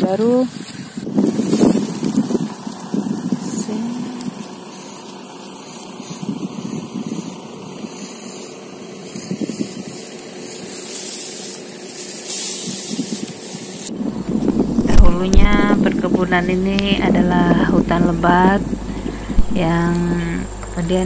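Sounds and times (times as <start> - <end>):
wind blowing across microphone: 0.0 - 4.6, 5.9 - 8.0, 9.1 - 10.1, 12.6 - 21.0.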